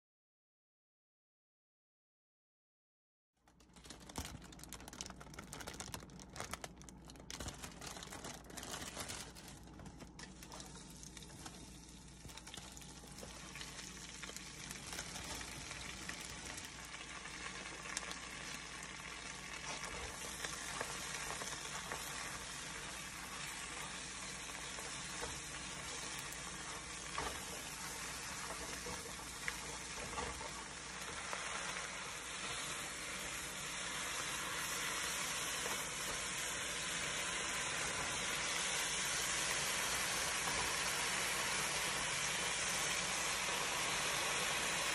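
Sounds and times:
spinach sizzling in a frying pan: 0:04.0 - 0:44.9.

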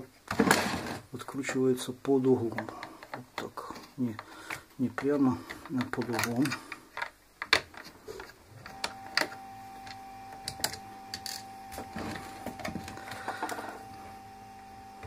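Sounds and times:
faint steady hum: 0:00.0 - 0:15.0
screwdriver and plastic clicks: 0:02.5 - 0:13.9.

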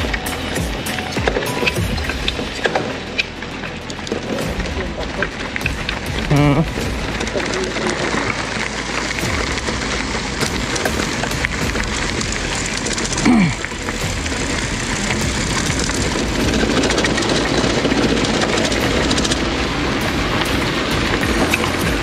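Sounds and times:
bicycle rattling over rough trail: 0:00.0 - 0:22.0
steady rushing noise: 0:00.0 - 0:22.0.

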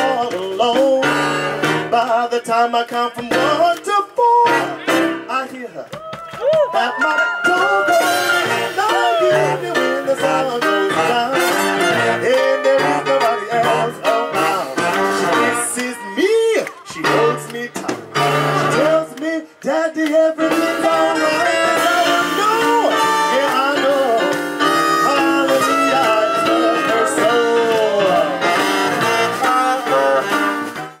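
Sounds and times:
swing jazz band playing: 0:00.0 - 0:05.7, 0:06.8 - 0:31.0
man singing: 0:00.0 - 0:06.0, 0:06.6 - 0:30.8
saxophone: 0:00.8 - 0:01.9, 0:06.7 - 0:19.5, 0:20.2 - 0:31.0.

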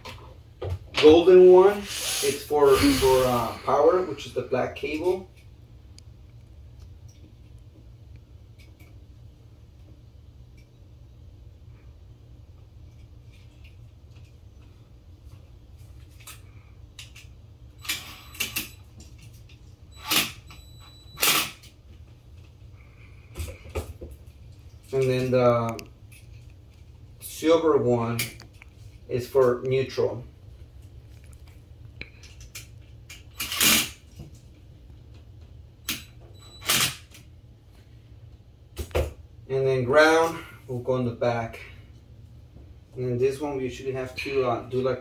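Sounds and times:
impact driver bursts: 0:21.2 - 0:21.6.

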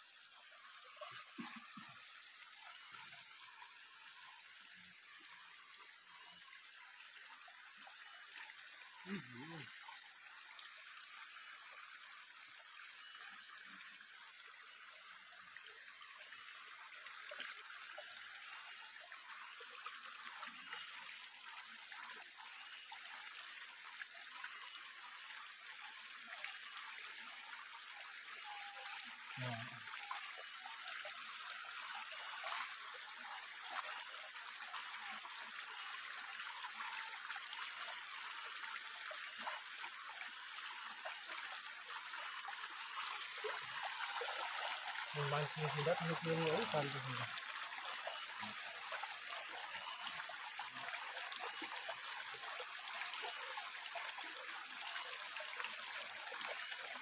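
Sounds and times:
stream trickling over stones: 0:00.0 - 0:57.0.

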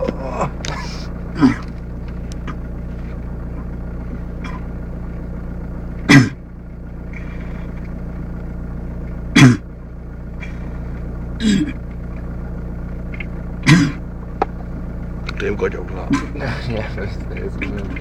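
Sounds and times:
man making guttural throat noises: 0:00.0 - 0:01.7, 0:04.4 - 0:04.7, 0:06.0 - 0:06.4, 0:09.3 - 0:09.7, 0:11.4 - 0:11.8, 0:13.6 - 0:14.0
car engine hum inside cabin: 0:00.0 - 0:18.0.

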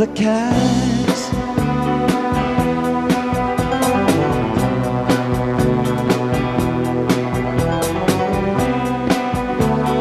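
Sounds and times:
rock band playing: 0:00.0 - 0:10.0
steady drum beat: 0:00.4 - 0:10.0.

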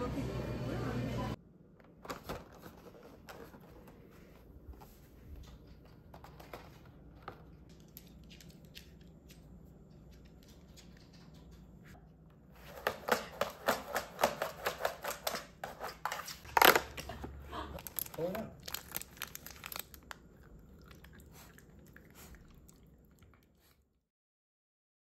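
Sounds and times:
cardboard tearing crackle: 0:17.8 - 0:20.2.

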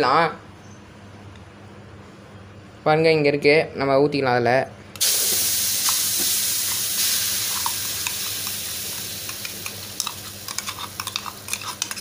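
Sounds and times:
oil popping and crackling: 0:05.0 - 0:12.0
pulp sizzling in hot oil: 0:05.0 - 0:12.0.

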